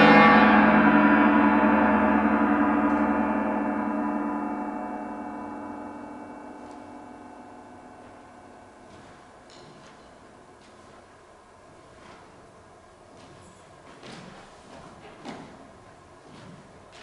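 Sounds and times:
orchestral gong ringing: 0.0s - 10.6s.

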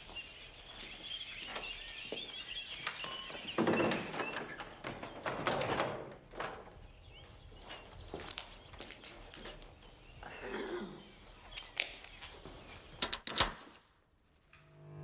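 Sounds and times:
birds chirping: 0.0s - 13.2s
wooden door shutting: 3.5s - 6.7s.

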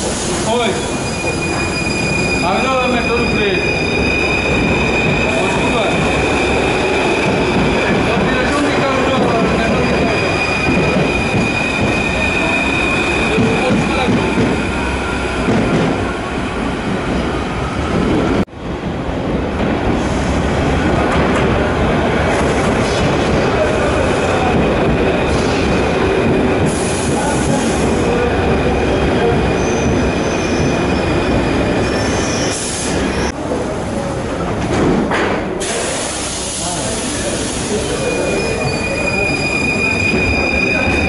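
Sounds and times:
steel wheels squealing on rails: 0.0s - 16.4s, 22.5s - 33.3s, 35.6s - 41.0s
train rolling rumble: 0.0s - 41.0s.

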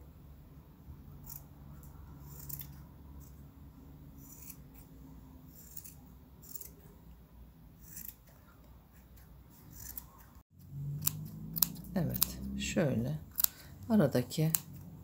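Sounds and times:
scissors snipping yarn: 1.2s - 3.4s, 4.2s - 4.9s, 5.5s - 6.9s, 7.8s - 15.0s.

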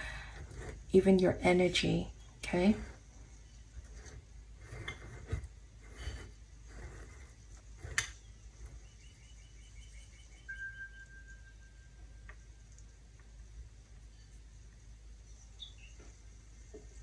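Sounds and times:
faint high steady tone: 9.0s - 13.4s.

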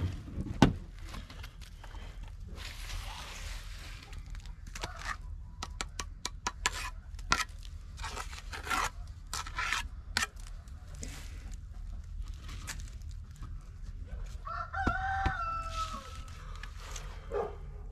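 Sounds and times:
trowel scraping mortar: 4.6s - 11.5s
trowel taps: 5.6s - 7.4s.

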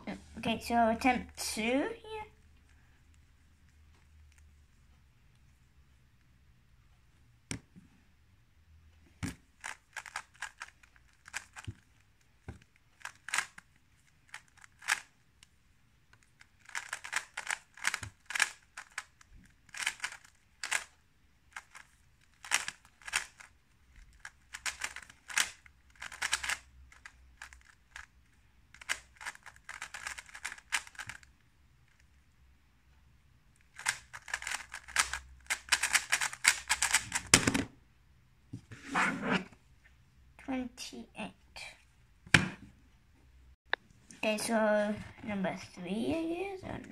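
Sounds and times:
puzzle cube clicking: 9.1s - 15.2s, 16.1s - 31.3s, 33.7s - 37.6s.

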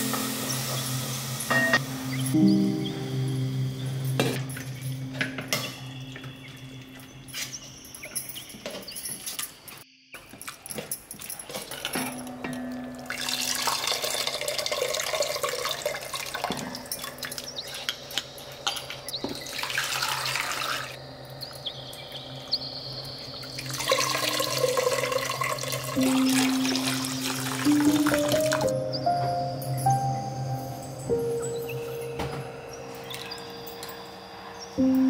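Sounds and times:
soft instrumental music: 0.0s - 9.1s, 12.0s - 14.3s, 23.7s - 35.0s
water pouring and splashing into pot: 13.0s - 17.9s, 19.4s - 21.0s, 23.6s - 28.7s.

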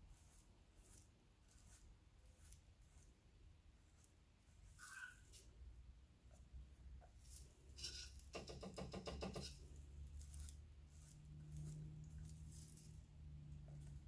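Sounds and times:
brush tapping on clay bowl: 7.9s - 9.7s.

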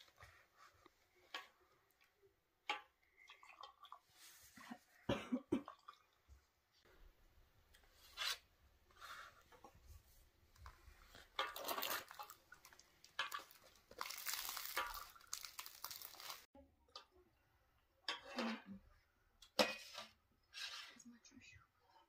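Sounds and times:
milk splashing into glasses: 11.4s - 16.5s.

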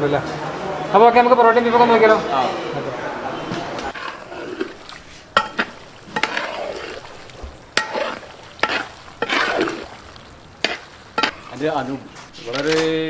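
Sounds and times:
metal spatula scraping steel pan: 3.8s - 12.5s
meat sizzling: 3.9s - 12.5s.

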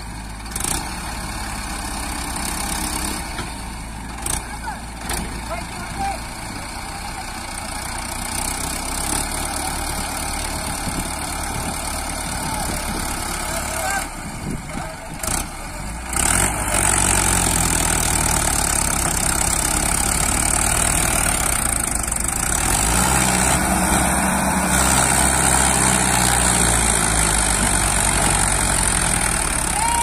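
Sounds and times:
diesel engines running under load: 0.0s - 30.0s.

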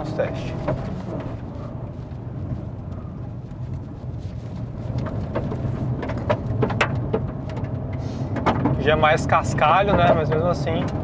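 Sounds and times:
car engine and tyres rumbling: 0.0s - 11.0s
sharp clicks and knocks: 4.9s - 11.0s.

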